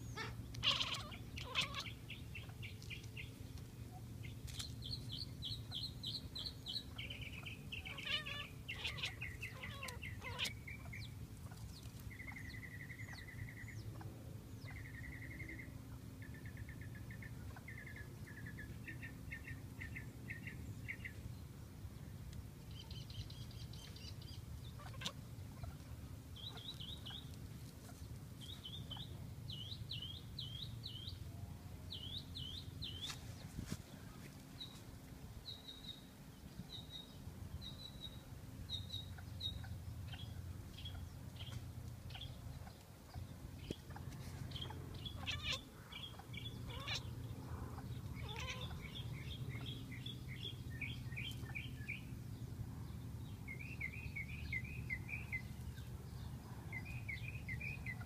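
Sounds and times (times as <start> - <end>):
finches singing: 0.0 - 21.2, 35.4 - 58.0
low steady hum: 0.0 - 58.0.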